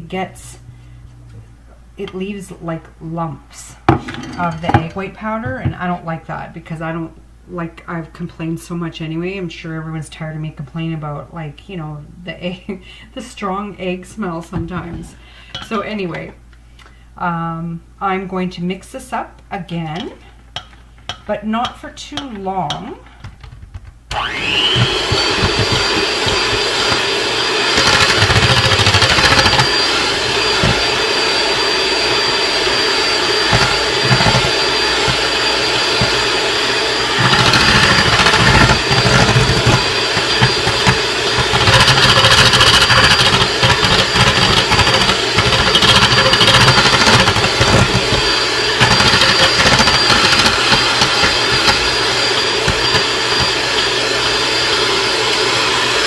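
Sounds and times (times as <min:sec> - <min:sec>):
electric hand mixer whipping: 0:24.1 - 0:56.0.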